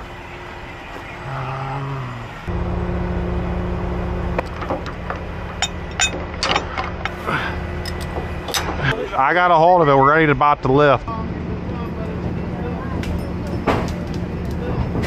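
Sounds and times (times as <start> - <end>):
truck engine droning: 0.0 - 15.0
metal shackles clanking: 4.5 - 7.2, 7.8 - 9.0.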